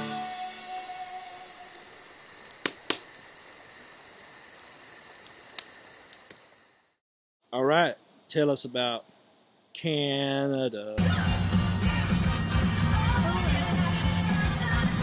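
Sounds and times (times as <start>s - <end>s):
campfire crackling: 0.0s - 7.0s
insects trilling: 0.0s - 7.0s
sharp pops from fire: 0.1s - 6.7s.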